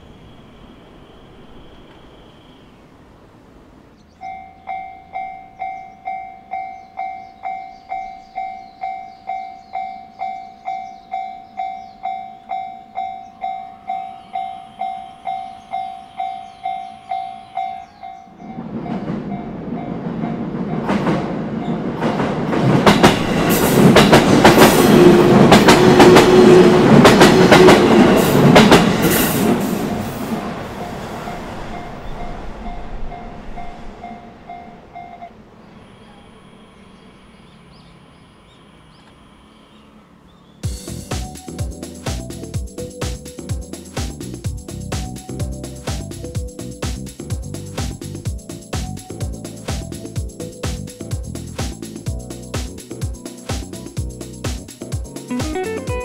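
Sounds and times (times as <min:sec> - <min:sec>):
level crossing warning bell: 0:04.2 - 0:20.9, 0:30.8 - 0:35.4
train wheels clacking over rail joints: 0:18.5 - 0:30.5.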